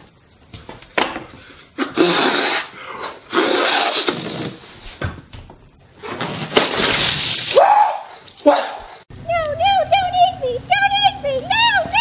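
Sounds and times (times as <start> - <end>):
person blowing up balloon: 1.8 - 4.9.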